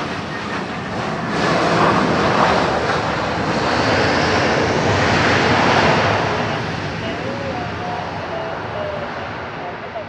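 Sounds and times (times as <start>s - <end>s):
jet engines roaring: 0.0s - 10.0s.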